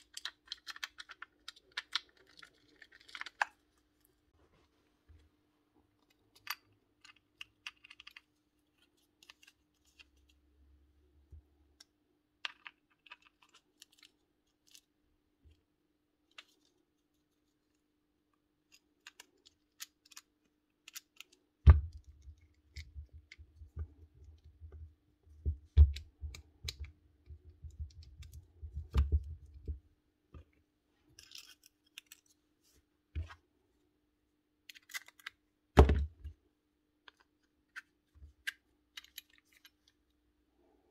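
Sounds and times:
small parts clicking and tapping: 0.0s - 3.6s, 6.0s - 10.4s, 11.8s - 14.9s, 18.6s - 24.5s, 37.0s - 40.0s.

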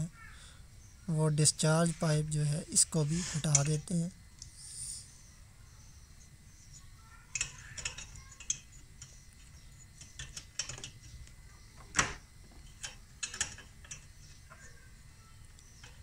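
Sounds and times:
hand tools clicking on metal pipe: 7.3s - 11.1s, 12.8s - 14.1s.

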